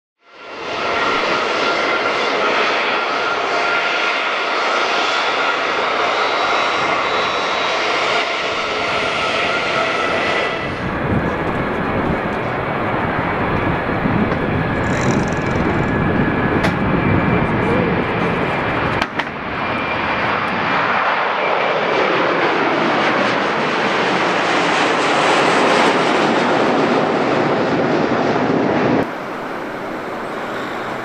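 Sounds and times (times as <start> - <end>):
jet engines roaring: 0.2 - 31.0.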